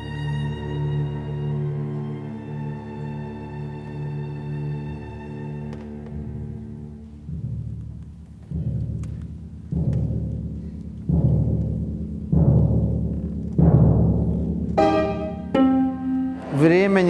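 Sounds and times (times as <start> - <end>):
heavy low drum strokes: 7.1 - 15.6
low held tone: 14.8 - 16.6
strings sustained chord: 14.8 - 17.0.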